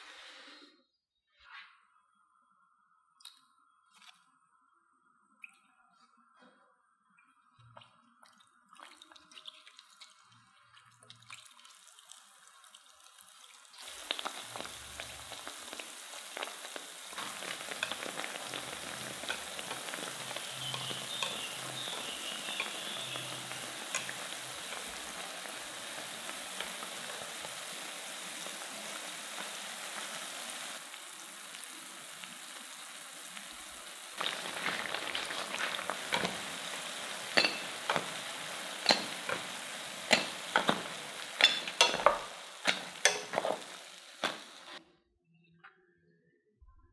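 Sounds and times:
potatoes frying in hot oil: 9.6s - 44.8s.

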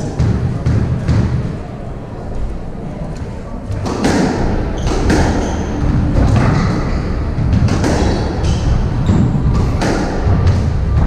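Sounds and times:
squash ball smacked by rackets: 3.8s - 5.6s, 7.4s - 11.0s.

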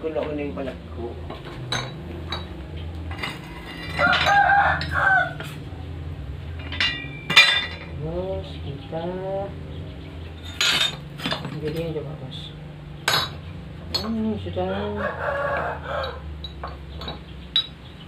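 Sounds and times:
scrap steel clinking: 1.3s - 5.7s, 6.4s - 8.0s, 10.4s - 12.0s, 13.0s - 14.2s, 16.0s - 17.9s
rooster crowing: 3.6s - 5.8s, 14.7s - 16.4s.

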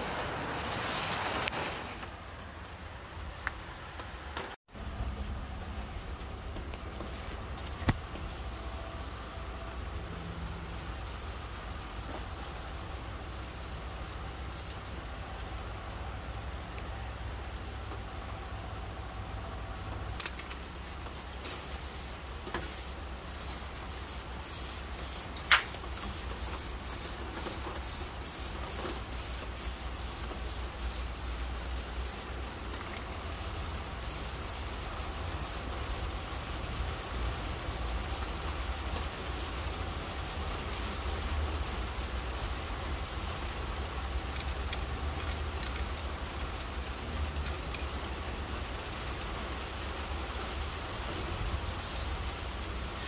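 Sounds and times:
spray paint hissing: 21.4s - 47.7s, 50.3s - 51.0s, 51.7s - 52.2s.

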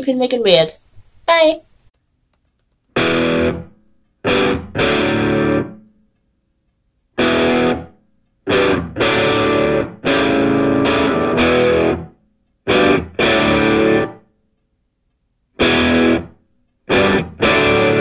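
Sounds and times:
distorted electric guitar chords: 3.0s - 5.9s, 7.2s - 12.1s, 12.7s - 14.2s, 15.6s - 18.0s.

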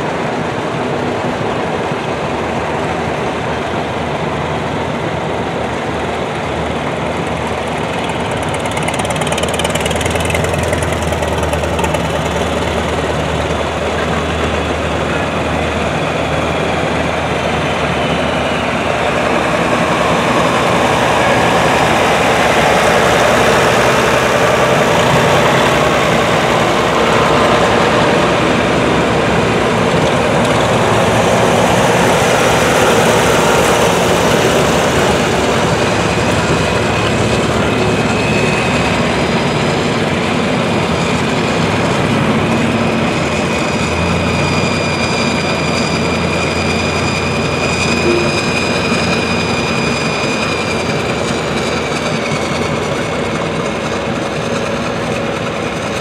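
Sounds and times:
steady high whine: 0.0s - 39.4s, 46.8s - 51.6s
diesel engine close by: 0.0s - 56.0s
tractor engines driving past: 0.0s - 56.0s.

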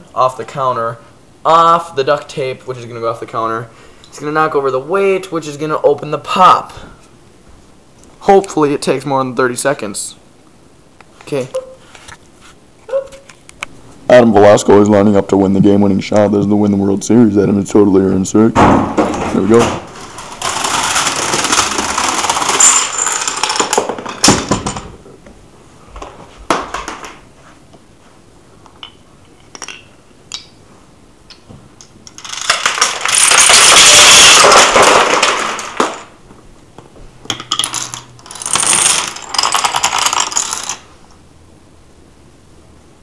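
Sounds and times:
cases and dominoes toppling: 18.6s - 25.0s, 26.0s - 27.3s, 31.8s - 36.2s, 37.3s - 41.0s
marble rolling along ramps: 19.0s - 25.0s, 32.0s - 36.2s, 37.4s - 40.9s.

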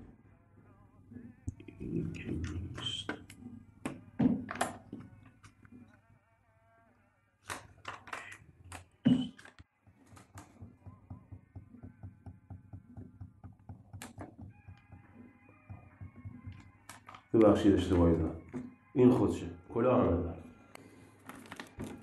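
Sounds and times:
taps on wooden desk: 3.1s - 5.1s, 10.2s - 17.3s
thunk on desk: 3.9s - 4.9s
paper rustling: 21.1s - 22.0s.

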